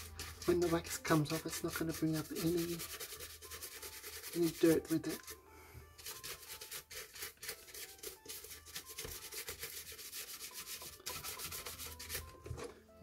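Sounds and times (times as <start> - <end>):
toothbrush scrubbing plastic grille: 0.0 - 5.4, 6.0 - 12.3.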